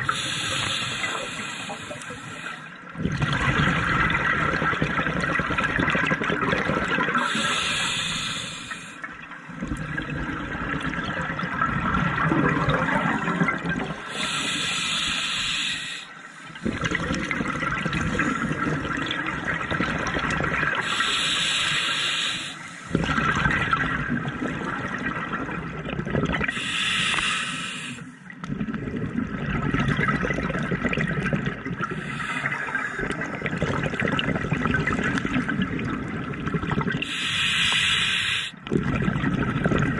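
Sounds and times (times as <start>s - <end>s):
regulator hiss on inhale: 0.0s - 2.8s, 7.2s - 9.0s, 14.0s - 16.6s, 20.8s - 22.9s, 26.5s - 28.2s, 32.0s - 32.9s, 37.0s - 38.6s
burble of exhaled bubbles: 2.8s - 7.7s, 9.0s - 14.4s, 16.5s - 21.2s, 22.8s - 27.3s, 28.3s - 37.1s, 38.6s - 39.9s.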